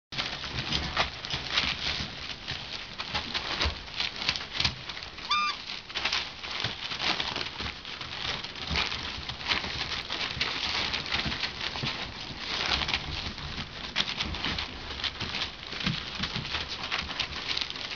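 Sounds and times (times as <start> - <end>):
paper rustling and crinkling: 0.2 - 17.9
paws pattering: 0.2 - 17.9
puppy squeaking: 5.3 - 5.7.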